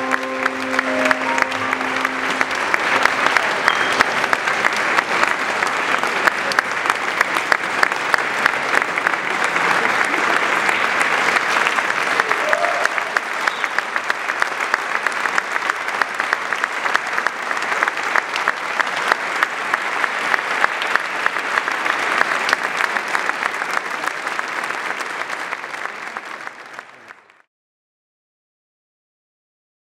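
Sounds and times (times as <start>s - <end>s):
audience applauding: 0.0s - 27.5s.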